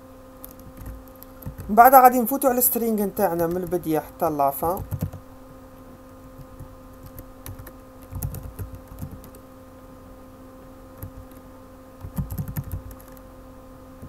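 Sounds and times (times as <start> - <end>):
steady hum: 0.0 - 14.0
keyboard typing: 0.5 - 1.7, 4.6 - 5.2, 6.4 - 9.4, 12.0 - 13.2.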